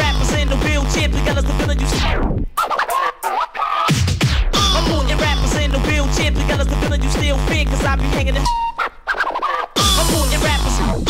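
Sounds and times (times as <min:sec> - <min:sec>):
pounding kick drum: 0:00.0 - 0:02.0, 0:03.9 - 0:08.4, 0:09.8 - 0:11.0
fast hard dance music: 0:00.0 - 0:08.5, 0:09.8 - 0:11.0.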